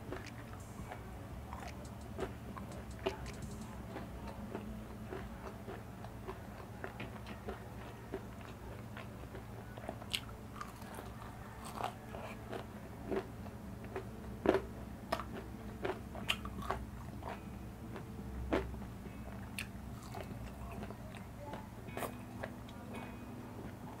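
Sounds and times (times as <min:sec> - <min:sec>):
fried chicken crunching: 0:01.5 - 0:18.7, 0:19.4 - 0:21.0.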